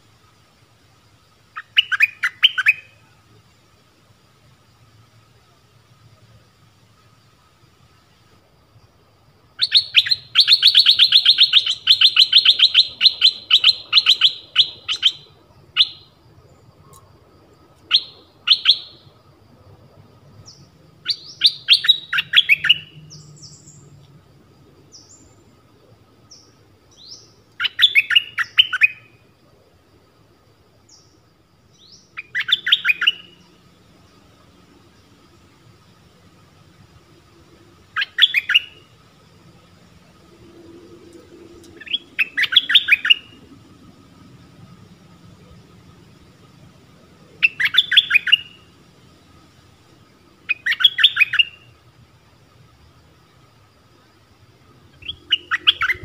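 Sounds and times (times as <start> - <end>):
songbird chattering: 1.5 - 3.6, 9.5 - 17.1, 17.8 - 19.2, 20.4 - 24.0, 26.3 - 29.1, 30.9 - 35.4, 37.8 - 39.0, 40.9 - 43.5, 47.3 - 48.7, 50.4 - 51.8, 54.9 - 56.0.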